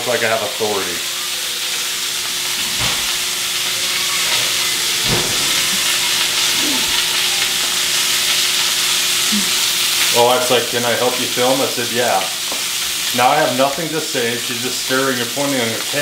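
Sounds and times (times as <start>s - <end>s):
steak sizzling in a pan: 0.0s - 16.0s.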